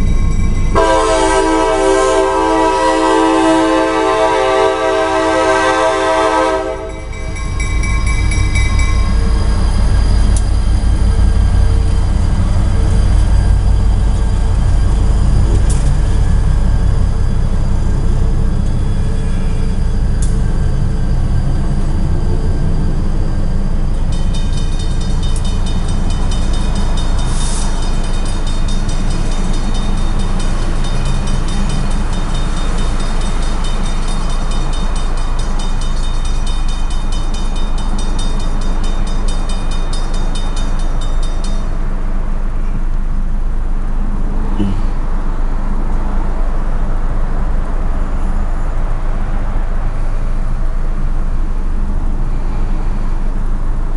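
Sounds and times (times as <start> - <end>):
crossing bell ringing: 0.0 - 15.0, 23.3 - 42.9.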